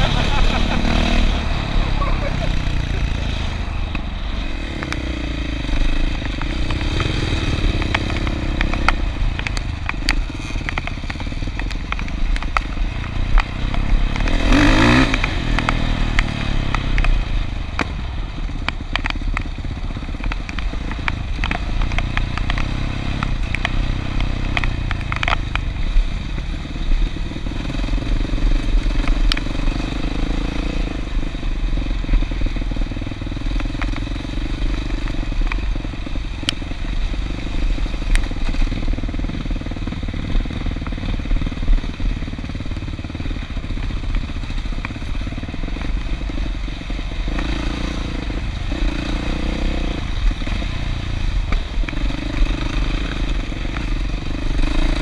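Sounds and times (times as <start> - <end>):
off-road vehicle engines running: 0.0 - 55.0
clicks and clatter: 5.8 - 26.1.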